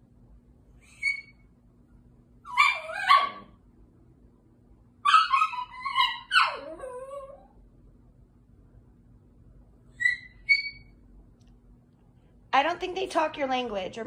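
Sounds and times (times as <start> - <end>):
small dog yipping and whining: 0.8 - 1.5, 2.4 - 3.6, 5.0 - 7.6, 9.9 - 11.0.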